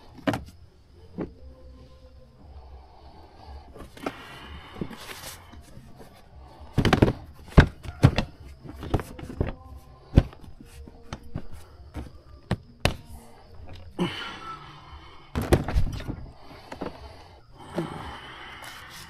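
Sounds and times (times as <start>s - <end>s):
sharp knocks and thumps: 6.8s - 9.6s.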